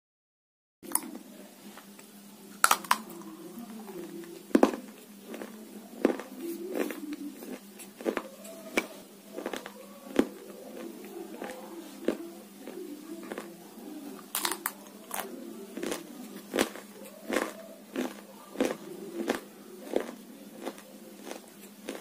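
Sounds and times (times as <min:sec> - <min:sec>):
steady low hum: 0:00.8 - 0:22.0
crisp food tapping on table: 0:04.6 - 0:04.8.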